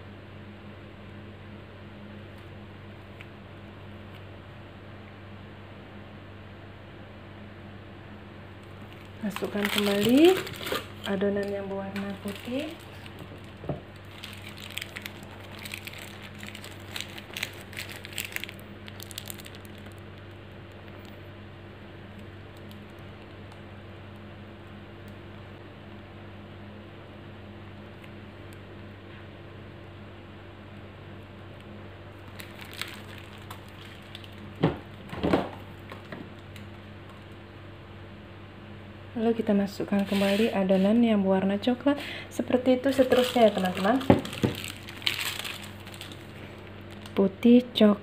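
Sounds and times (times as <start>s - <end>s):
steady low hum: 0.0s - 48.0s
plastic bag crinkling: 8.6s - 21.2s, 32.1s - 37.4s, 42.8s - 47.3s.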